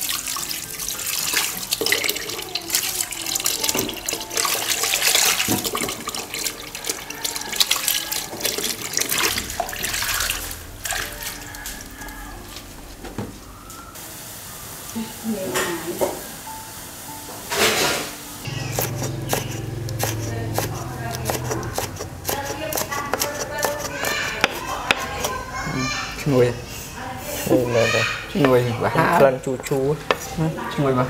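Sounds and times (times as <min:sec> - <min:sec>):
tap water running into sink: 0:00.0 - 0:12.2
hands splashing greens in water: 0:00.1 - 0:12.1.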